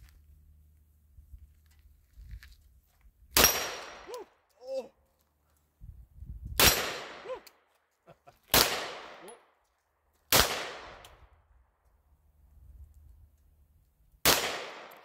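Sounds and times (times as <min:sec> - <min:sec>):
pistol shots with echo: 0:03.4 - 0:04.1, 0:06.6 - 0:07.3, 0:08.5 - 0:09.4, 0:10.3 - 0:11.0, 0:14.3 - 0:15.0.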